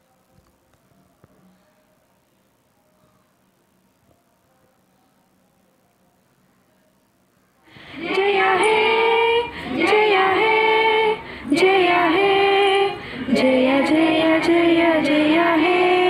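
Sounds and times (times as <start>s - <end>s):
woman singing slow melody: 7.9s - 16.0s.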